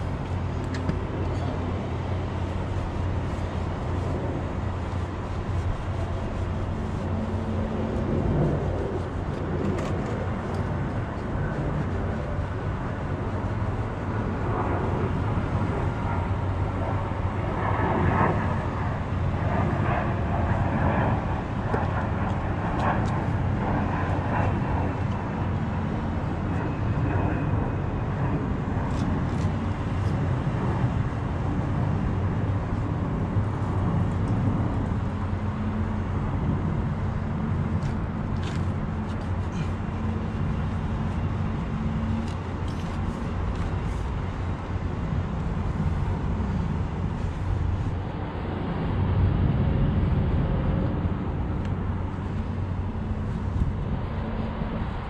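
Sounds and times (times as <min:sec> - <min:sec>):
cloth rubbing on metal rim: 0:02.4 - 0:10.4.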